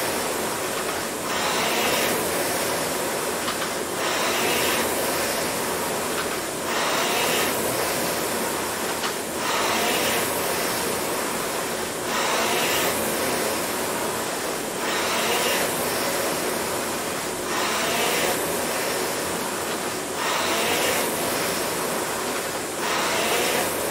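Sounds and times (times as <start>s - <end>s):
rowing machine flywheel whooshing: 0.0s - 23.9s.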